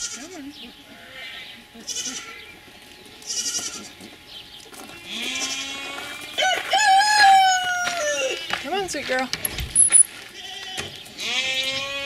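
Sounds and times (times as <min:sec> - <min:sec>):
goat bleating: 0:00.0 - 0:02.6, 0:03.2 - 0:04.1, 0:05.0 - 0:06.3, 0:10.3 - 0:12.0
footsteps on gravel: 0:02.6 - 0:12.0.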